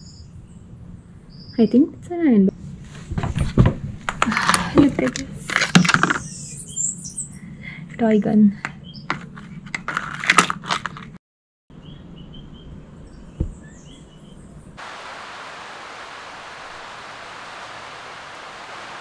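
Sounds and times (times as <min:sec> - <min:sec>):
rain hissing: 0:14.8 - 0:19.0.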